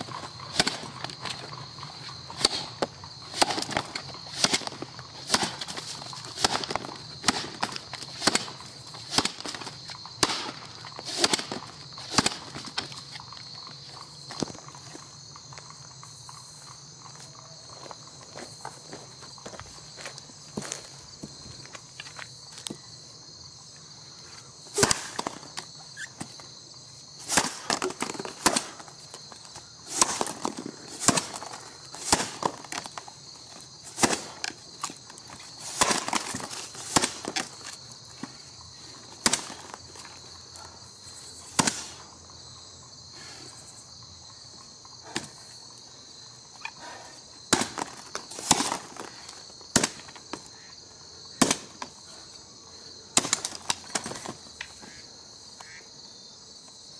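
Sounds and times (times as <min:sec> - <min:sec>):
axe chopping into log: 0:02.4 - 0:05.8, 0:06.4 - 0:09.6, 0:27.3 - 0:28.9, 0:29.9 - 0:32.9, 0:41.6 - 0:41.9, 0:47.5 - 0:49.1, 0:49.7 - 0:50.2
wood chips splitting off: 0:27.2 - 0:38.4, 0:47.5 - 0:50.3.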